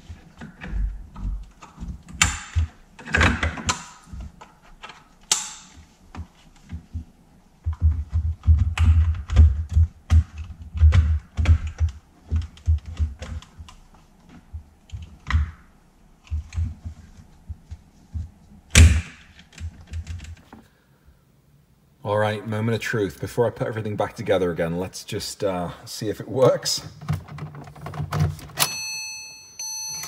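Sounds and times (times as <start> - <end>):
plastic clicks and knocks: 0.4 - 15.6.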